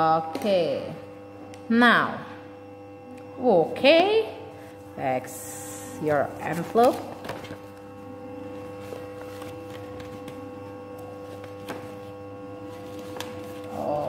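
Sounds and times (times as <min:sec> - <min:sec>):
electrical hum: 0:00.0 - 0:14.0
book handled on desk: 0:06.6 - 0:07.8, 0:08.8 - 0:10.4, 0:11.2 - 0:12.1, 0:12.7 - 0:13.7.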